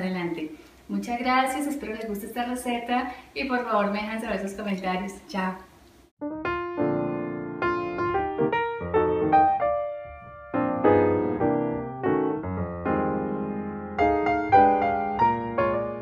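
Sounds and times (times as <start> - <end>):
piano notes and chords: 6.2 - 16.0.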